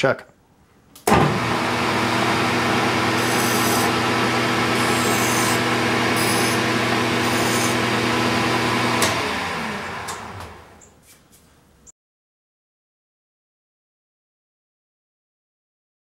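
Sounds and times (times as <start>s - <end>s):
metal lathe motor humming: 1.2s - 10.8s
file scraping spinning metal: 3.0s - 8.2s.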